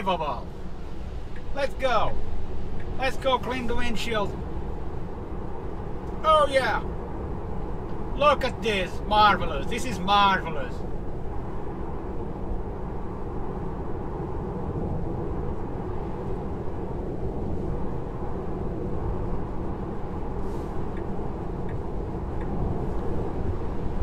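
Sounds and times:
wind noise: 0.0 - 24.0
faint light ticks: 20.9 - 22.6.

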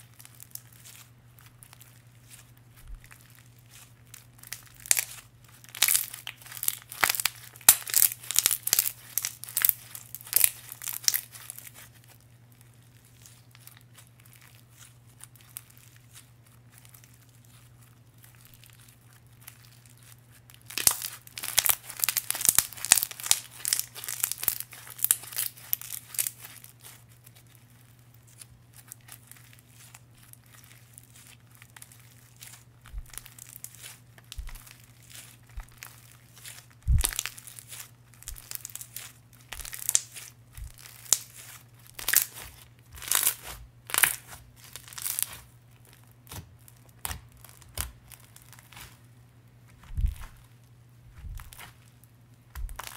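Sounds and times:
slime squished by hand: 0.0 - 12.2, 13.0 - 49.0, 49.8 - 50.5, 51.1 - 51.9, 52.5 - 52.9
crackly clicks and pops: 34.2 - 34.7.

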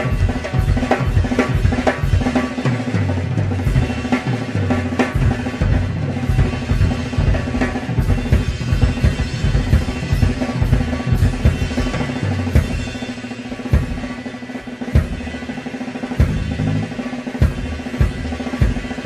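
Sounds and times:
cymbal crashes: 5.1 - 19.0.

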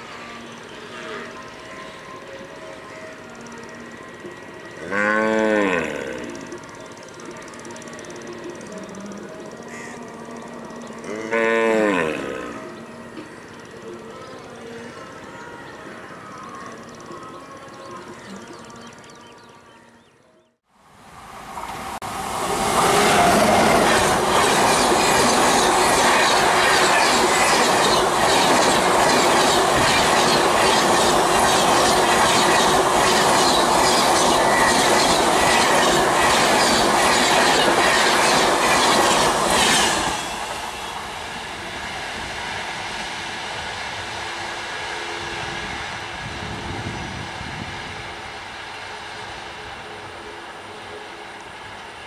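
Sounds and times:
train rushing past: 20.8 - 52.0
wheels clacking over rail joints: 22.4 - 41.1.

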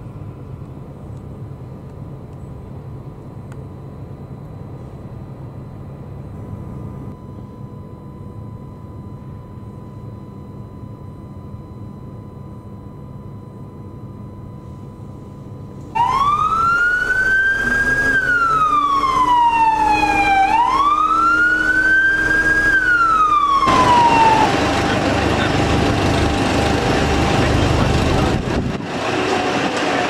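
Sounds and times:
quiet steady hum: 0.0 - 16.0
street traffic: 15.7 - 30.0
police siren wailing: 16.0 - 28.6.

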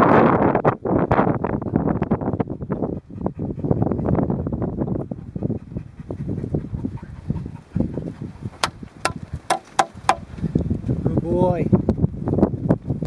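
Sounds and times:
microphone handling rumble: 0.0 - 13.0
wind buffeting microphone: 0.0 - 13.0
sharp clicks or knocks: 8.6 - 10.3.

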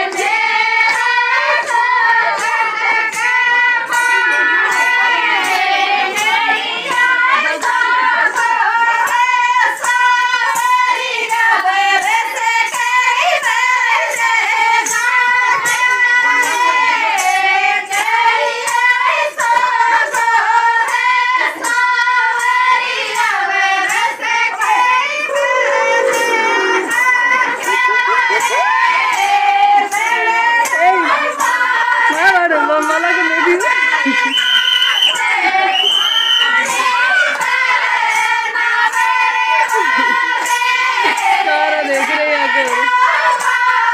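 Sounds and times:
woman singing folk song: 30.2 - 34.3.

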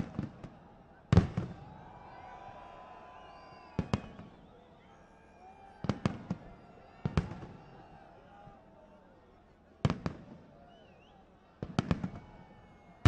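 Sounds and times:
fireworks bursting: 1.1 - 1.7, 3.8 - 4.3.

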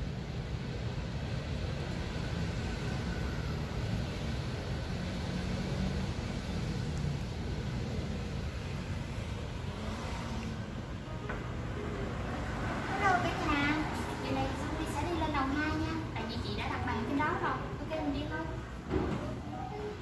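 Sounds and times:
city street traffic rumble: 0.0 - 20.0.

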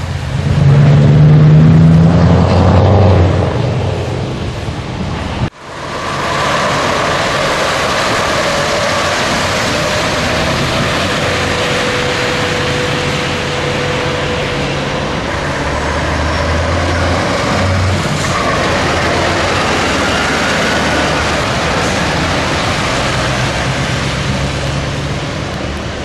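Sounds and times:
diesel truck engine running: 0.0 - 26.0
road and wind noise: 0.0 - 26.0
thin steady whine: 4.0 - 17.3.

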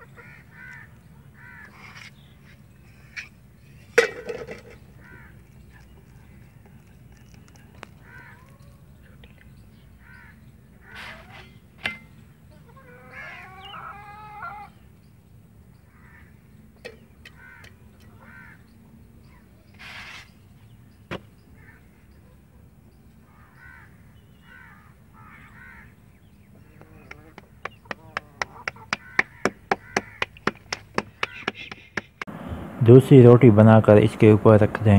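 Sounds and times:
crows cawing: 0.0 - 2.1, 4.0 - 6.8, 7.6 - 8.8, 9.9 - 11.6, 12.5 - 14.8, 15.9 - 16.4, 17.2 - 18.8, 21.6 - 22.0, 23.2 - 32.2.

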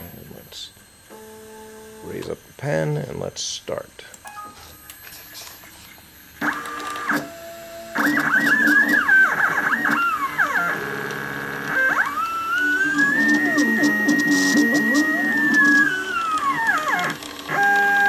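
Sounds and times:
stepper motors whining: 4.9 - 18.0.

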